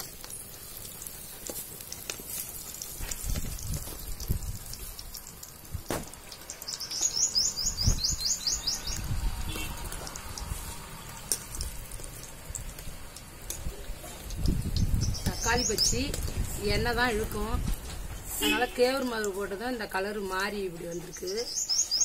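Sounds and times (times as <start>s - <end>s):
oil frying in a pan: 0.0s - 22.0s
bird chirping: 6.5s - 9.6s, 15.0s - 16.1s, 20.9s - 22.0s.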